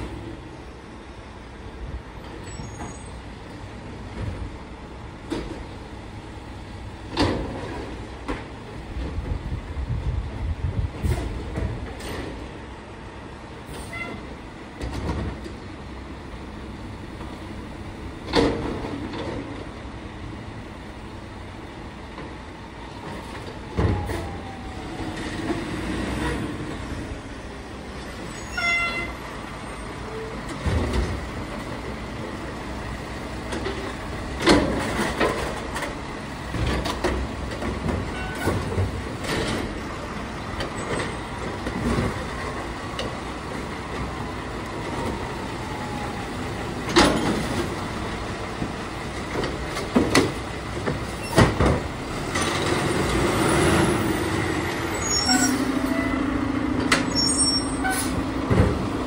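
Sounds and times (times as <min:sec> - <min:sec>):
garbage truck diesel engine: 0:00.0 - 0:59.0
brief squeal: 0:02.4 - 0:03.2, 0:28.3 - 0:29.1, 0:54.9 - 0:56.3, 0:57.0 - 0:58.2.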